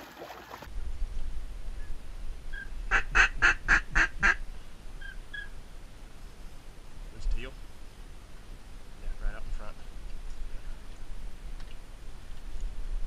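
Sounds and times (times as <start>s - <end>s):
duck quacking: 2.9s - 4.4s.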